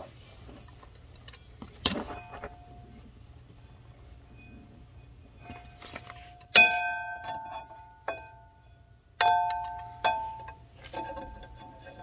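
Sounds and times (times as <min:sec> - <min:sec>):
ringing metal clanks: 0:04.3 - 0:05.8, 0:06.4 - 0:12.0.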